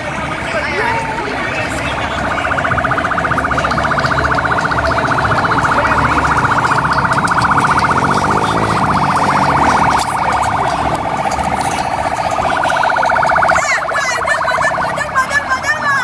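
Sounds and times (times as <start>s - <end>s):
siren electronic warble: 1.2s - 15.6s.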